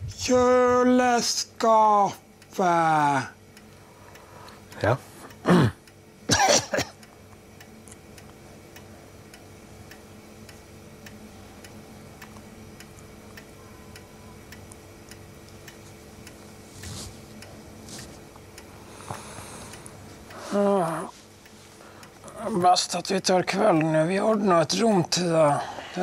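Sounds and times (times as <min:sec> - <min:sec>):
clock ticking: 0:01.2 - 0:16.6, 0:22.0 - 0:25.6
soft rustling: 0:15.8 - 0:18.4.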